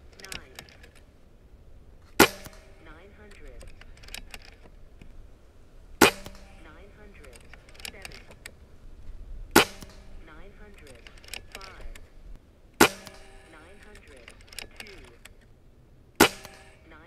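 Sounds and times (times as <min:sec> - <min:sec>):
rifle lever clicks: 0:00.0 - 0:01.1, 0:02.1 - 0:05.1, 0:06.0 - 0:08.6, 0:09.6 - 0:12.1, 0:12.8 - 0:15.5, 0:16.2 - 0:17.0
air rifle shot: 0:02.2 - 0:04.4, 0:06.0 - 0:08.4, 0:09.5 - 0:12.1, 0:12.8 - 0:15.1, 0:16.2 - 0:17.0.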